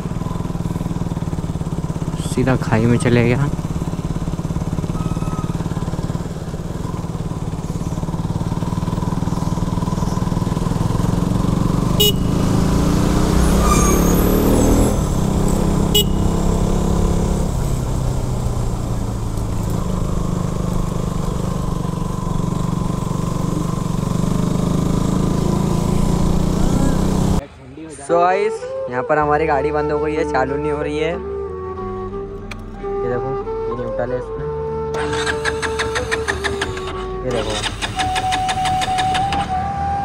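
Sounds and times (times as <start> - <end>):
motorcycle engine running: 0.0 - 27.4, 34.8 - 40.0
road and wind noise: 0.0 - 40.0
vehicle passing: 5.7 - 28.8.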